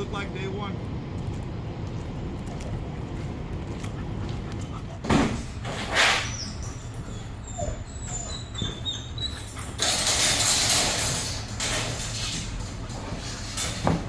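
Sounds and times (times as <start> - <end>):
wire kennel rattling: 5.7 - 14.0
dog whining: 5.8 - 10.4.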